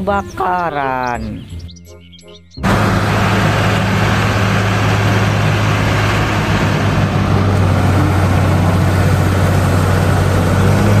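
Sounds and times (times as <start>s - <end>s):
fire truck diesel engine running: 2.6s - 11.0s.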